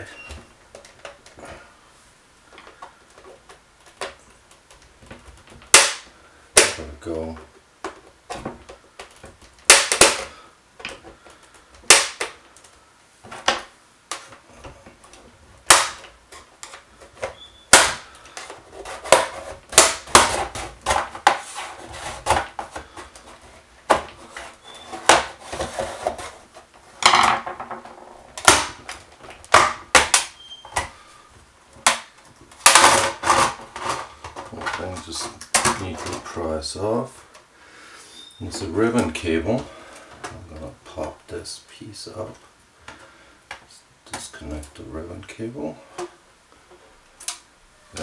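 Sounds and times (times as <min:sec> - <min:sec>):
plastic scraping: 0:06.6 - 0:31.1, 0:31.8 - 0:36.7
plastic clips snapping loose: 0:07.8 - 0:12.7.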